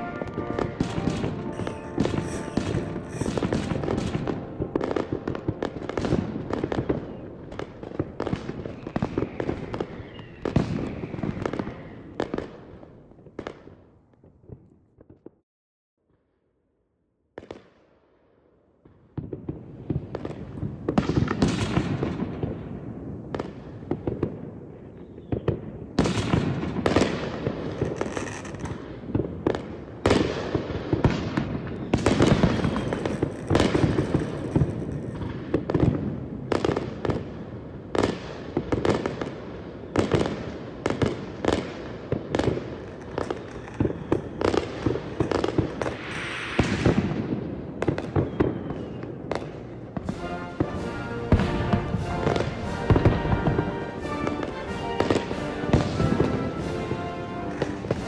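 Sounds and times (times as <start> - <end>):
fireworks bursting: 0.0 - 13.7, 19.2 - 24.4, 25.0 - 37.4, 38.0 - 58.0.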